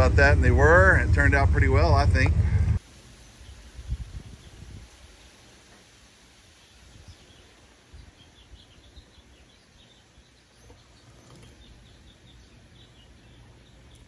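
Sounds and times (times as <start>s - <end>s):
low rumble of wind: 0.0s - 14.0s
small birds chirping faintly: 2.8s - 14.0s.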